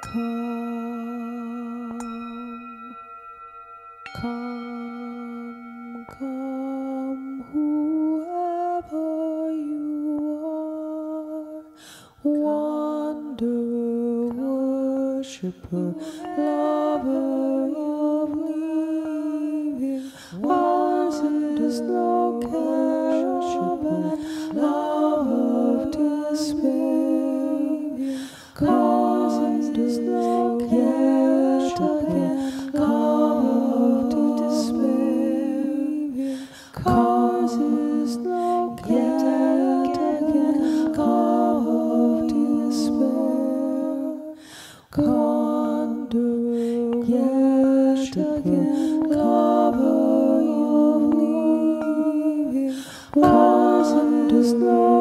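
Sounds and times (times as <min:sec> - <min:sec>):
singing bowl ringing: 0:00.0 - 0:09.6, 0:15.9 - 0:35.3
voices humming a hymn: 0:15.7 - 0:44.4, 0:45.0 - 0:55.0.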